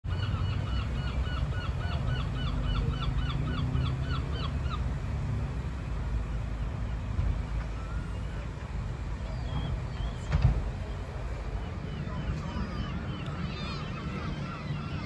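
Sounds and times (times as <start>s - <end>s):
gull yelping calls: 0.1s - 4.8s, 11.9s - 15.0s.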